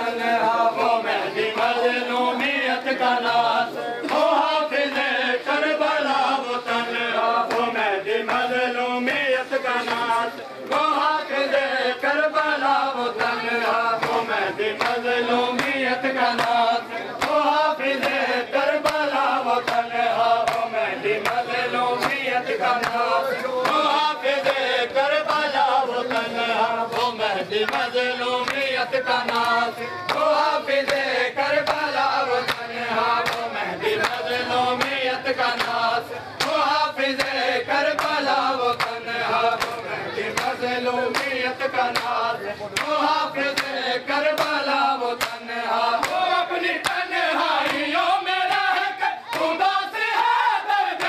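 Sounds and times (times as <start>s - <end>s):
men chanting a lament: 0.0s - 51.0s
hands slapping on bare chests: 14.8s - 15.8s, 18.8s - 21.4s, 32.4s - 34.2s, 46.0s - 46.2s.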